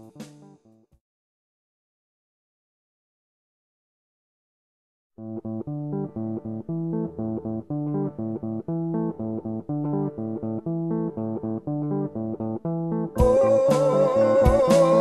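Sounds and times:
plucked guitar riff: 0:05.2 - 0:15.0.

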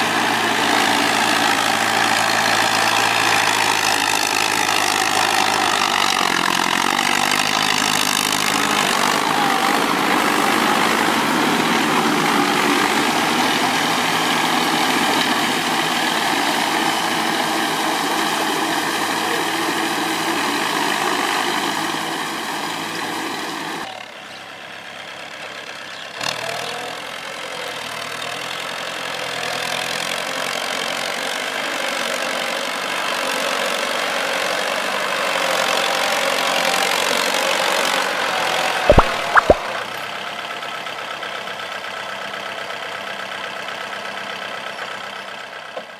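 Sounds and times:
tractor diesel engine running: 0:00.0 - 0:45.9
sharp click: 0:38.9 - 0:39.7.

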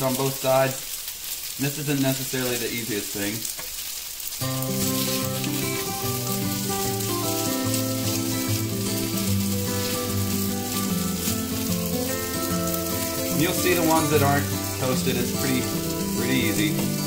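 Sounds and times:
gnocchi sizzling in hot oil: 0:00.0 - 0:17.0
background music of held chords: 0:04.4 - 0:17.0.

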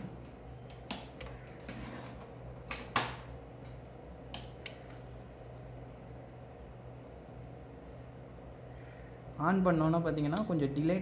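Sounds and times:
faint steady low hum: 0:00.0 - 0:11.0
voltage stabilizer switch clicks: 0:04.3 - 0:04.8.

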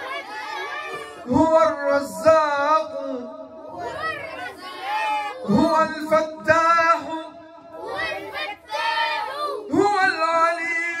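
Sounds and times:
children singing together: 0:07.7 - 0:09.7.

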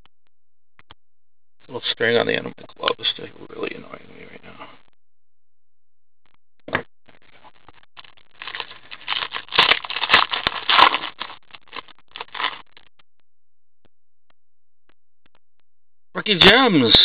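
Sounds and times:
foil wrapper crinkling and tearing: 0:08.3 - 0:12.6.

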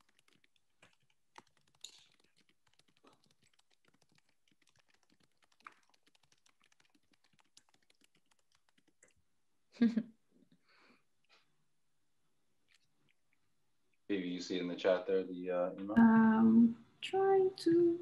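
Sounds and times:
faint keyboard typing: 0:00.0 - 0:09.2.

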